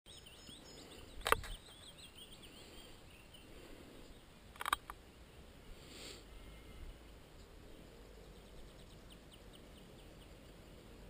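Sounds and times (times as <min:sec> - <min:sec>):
faint birdsong chirps: 0:00.1 - 0:11.0
sharp clicks: 0:01.2 - 0:01.6, 0:04.5 - 0:05.0.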